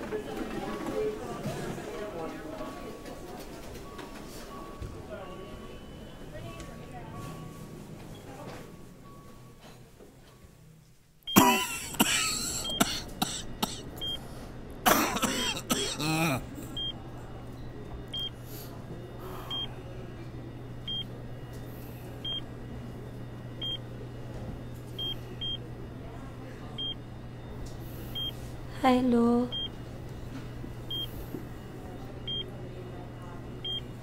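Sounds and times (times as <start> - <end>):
patient monitor beeping: 2.1 - 9.6, 11.2 - 34.0
steady low hum: 10.9 - 34.0
person coughing and gasping: 11.4 - 13.9, 14.8 - 16.6.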